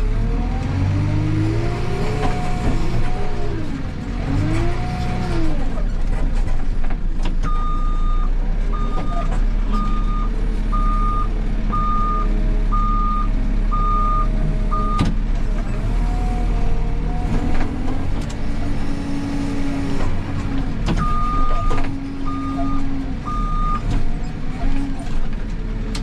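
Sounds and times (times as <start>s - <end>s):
diesel engine revving: 0.0s - 6.5s, 7.4s - 26.0s
reversing alarm beeping: 9.8s - 15.0s, 21.0s - 23.8s.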